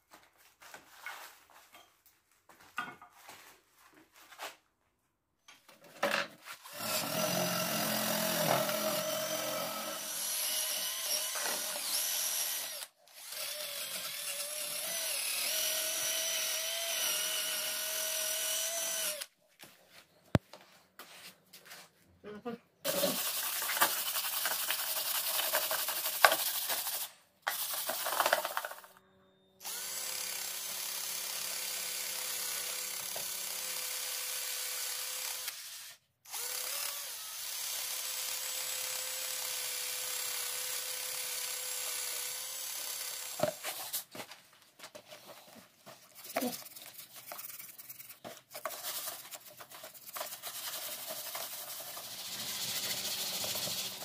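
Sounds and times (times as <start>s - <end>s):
hand-held power tool running: 6.6s - 19.3s, 22.9s - 29.0s, 29.6s - 44.1s, 46.2s - 54.0s
brush scrubbing metal parts: 22.9s - 27.0s, 45.9s - 54.0s.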